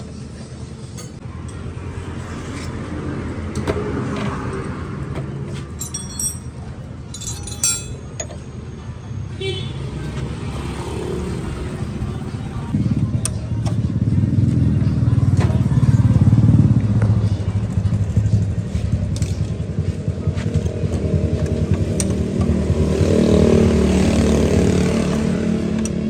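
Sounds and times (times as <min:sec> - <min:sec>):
motor vehicles rumbling: 0:00.0 - 0:26.0
light metallic clinks: 0:05.8 - 0:08.4.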